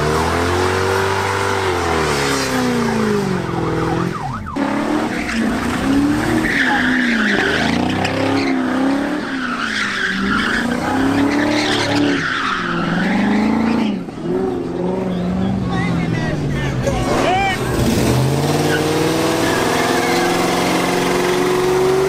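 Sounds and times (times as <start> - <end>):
car engine revving: 0.0 - 22.0
tyres squealing: 4.7 - 15.9.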